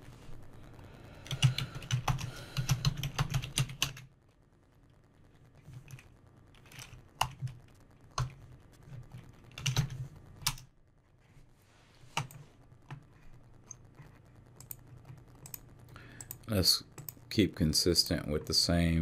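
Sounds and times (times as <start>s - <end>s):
computer keyboard typing: 1.2s - 4.1s, 5.6s - 10.7s, 12.2s - 17.2s.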